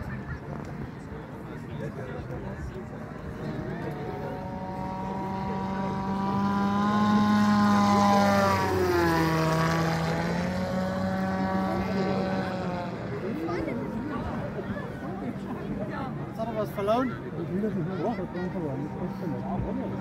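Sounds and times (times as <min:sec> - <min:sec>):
model aircraft motor and propeller whining: 0:02.2 - 0:20.0.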